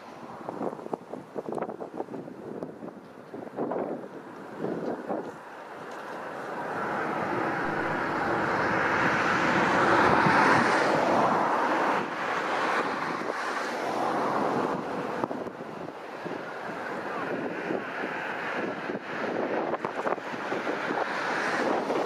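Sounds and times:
vehicle passing by: 5.1s - 22.0s.

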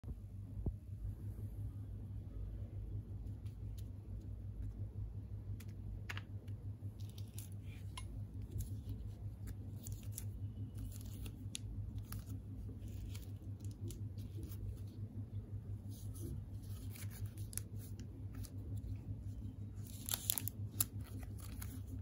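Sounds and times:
steady low hum: 0.0s - 22.0s
plastic wrappers crinkling: 7.0s - 15.0s, 15.9s - 22.0s.

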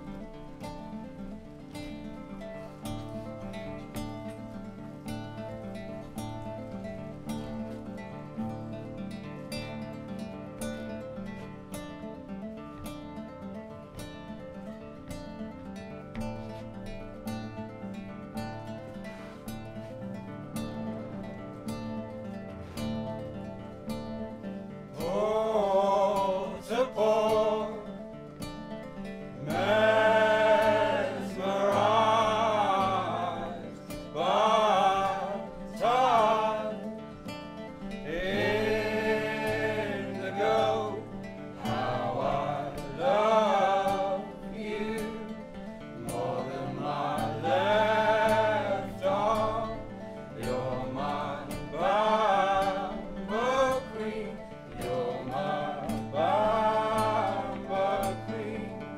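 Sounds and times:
nylon-string guitars playing: 0.0s - 58.9s
man singing: 25.0s - 28.0s, 29.4s - 37.1s, 46.0s - 58.9s.

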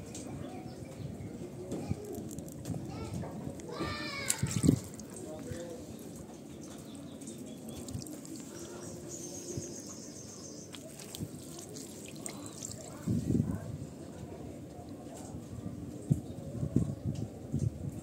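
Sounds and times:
water trickling and dripping: 3.6s - 13.4s.

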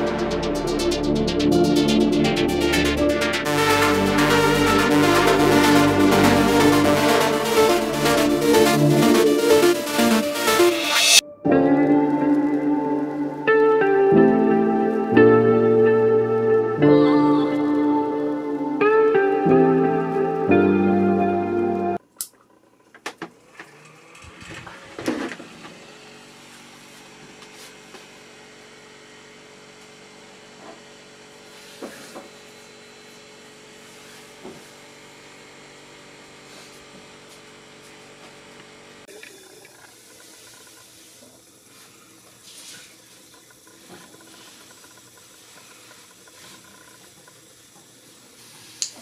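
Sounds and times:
desk fan motor hum: 22.0s - 49.0s.

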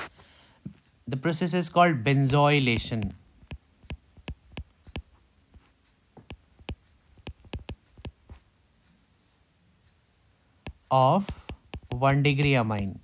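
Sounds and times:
stylus tapping on a tablet: 2.6s - 8.4s, 10.6s - 12.6s.

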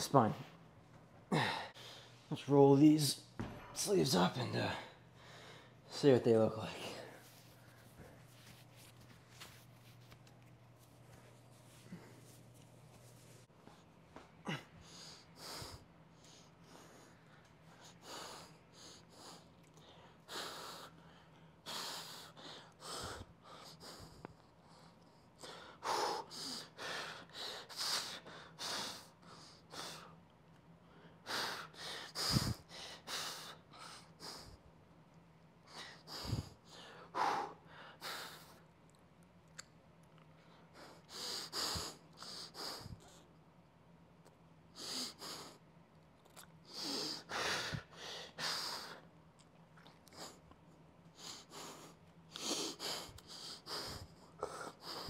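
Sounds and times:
faint steady hum: 0.0s - 55.0s
man breathing hard: 1.2s - 2.3s, 4.6s - 5.9s, 14.4s - 30.2s, 30.8s - 34.7s, 35.7s - 38.7s, 40.5s - 43.2s, 46.6s - 49.1s, 51.2s - 55.0s.

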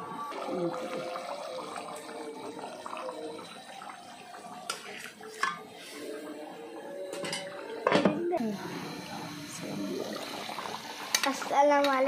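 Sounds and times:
curry bubbling in a pot: 0.2s - 5.6s, 8.8s - 11.9s.

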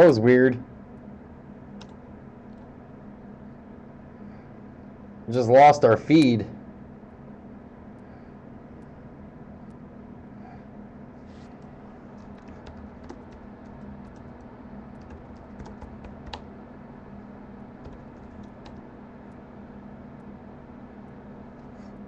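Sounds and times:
steady low hum: 0.0s - 22.0s
computer keyboard typing: 1.8s - 2.6s, 11.6s - 16.5s, 17.8s - 18.8s.

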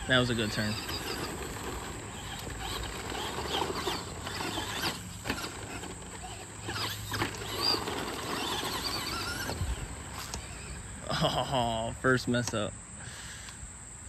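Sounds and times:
electric motor whining: 0.0s - 11.1s.

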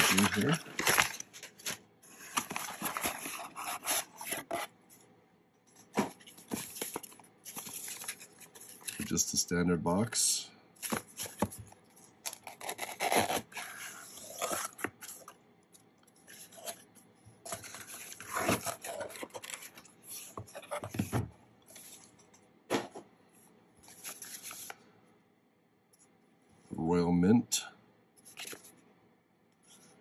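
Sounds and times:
cardboard flaps scraping and rustling: 0.0s - 4.7s, 17.5s - 22.1s.

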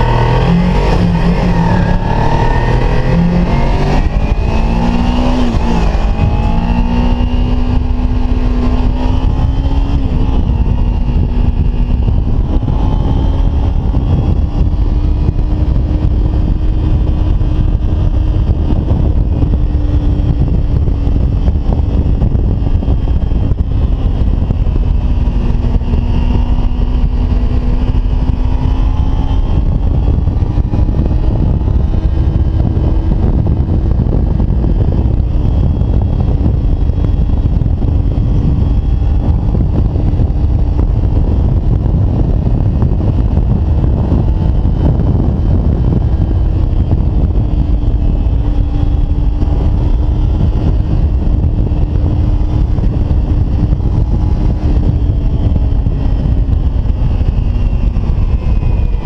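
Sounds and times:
motorcycle engine cruising: 0.0s - 59.0s
wind rumble on microphone: 0.0s - 59.0s.

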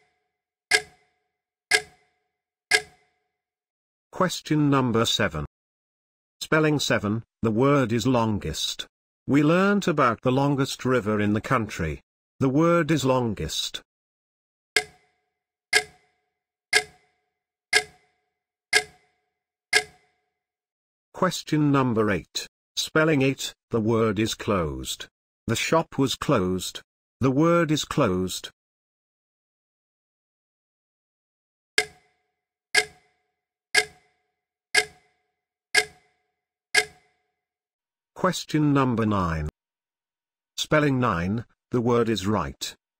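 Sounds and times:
clock ticking: 0.7s - 1.0s, 1.7s - 2.0s, 2.7s - 3.0s, 14.8s - 15.0s, 15.7s - 16.0s, 16.7s - 17.0s, 17.7s - 18.0s, 18.7s - 19.0s, 19.7s - 20.0s, 31.8s - 32.1s, 32.8s - 33.1s, 33.8s - 34.1s, 34.8s - 35.1s, 35.8s - 36.1s, 36.8s - 37.0s.

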